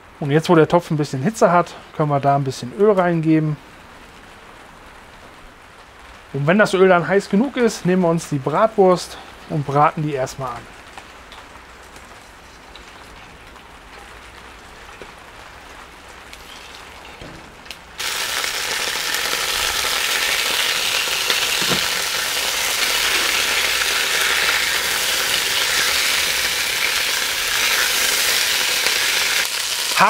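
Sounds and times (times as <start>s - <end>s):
sausages sizzling in hot oil: 11.9s - 30.0s.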